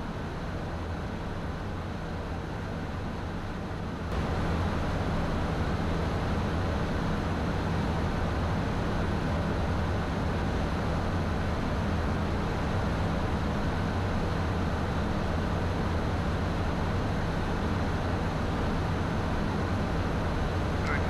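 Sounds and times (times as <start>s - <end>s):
jet engine hum: 12.8s - 21.0s.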